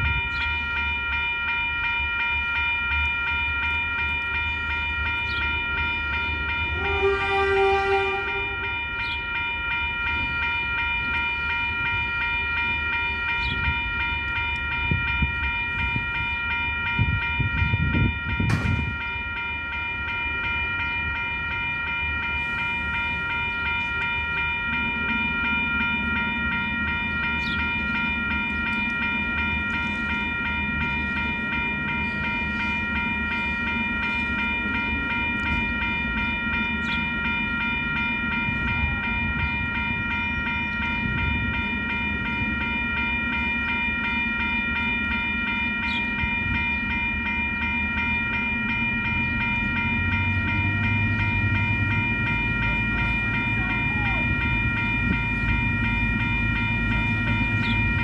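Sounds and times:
level crossing warning bells: 0.0s - 58.0s
loud metal clank: 18.5s - 18.9s.

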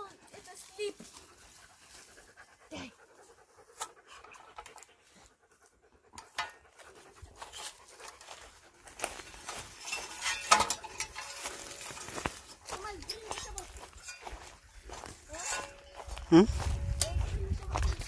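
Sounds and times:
dog panting: 0.1s - 9.0s
footsteps crunching dry leaves: 7.3s - 18.0s.

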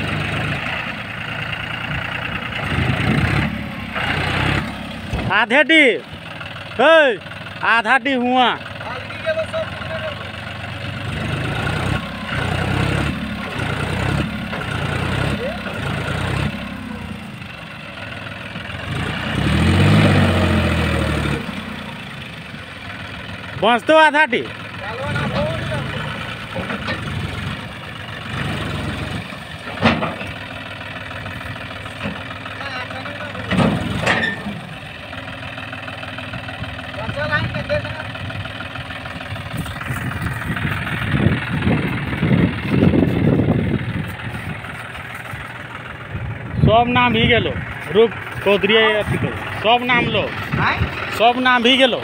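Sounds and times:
tractor diesel engine revving: 0.0s - 52.0s
trailer dumping soil: 18.6s - 21.9s, 24.7s - 35.4s.

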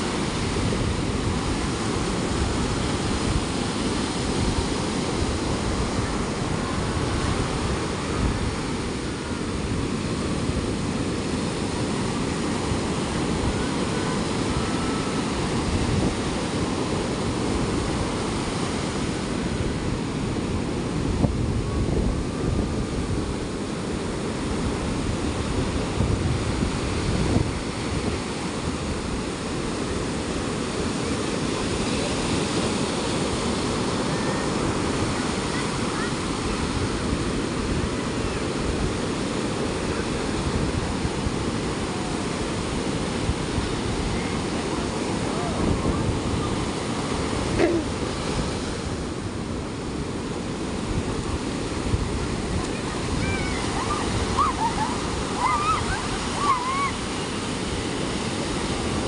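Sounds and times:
ocean waves breaking on beach: 0.0s - 59.0s.

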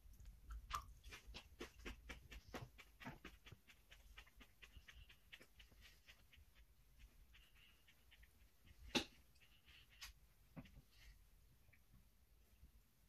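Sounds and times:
wet mouth clicks of chewing: 0.5s - 2.7s.

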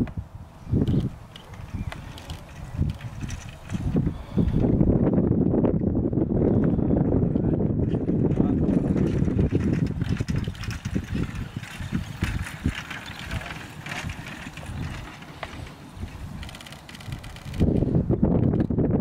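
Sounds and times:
wind buffeting microphone: 0.0s - 19.0s
carriage knocks and rattles: 0.8s - 4.0s, 7.8s - 17.9s.

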